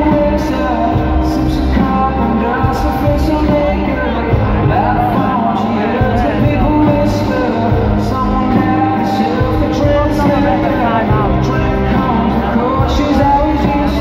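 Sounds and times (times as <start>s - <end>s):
live rock band playing: 0.0s - 14.0s
man singing: 0.0s - 14.0s.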